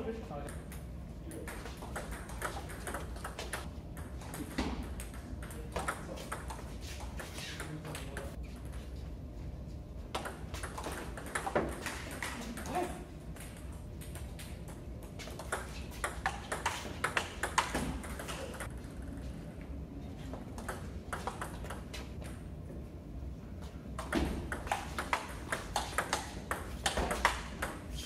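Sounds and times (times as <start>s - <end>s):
table tennis ball hits: 1.4s - 6.6s, 10.2s - 18.7s, 24.0s - 28.0s.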